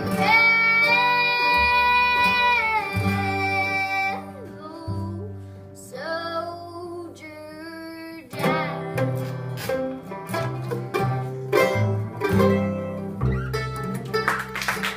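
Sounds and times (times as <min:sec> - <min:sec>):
acoustic string band playing: 0:00.0 - 0:05.8, 0:08.3 - 0:14.9
girl singing: 0:00.0 - 0:09.4, 0:10.5 - 0:12.0.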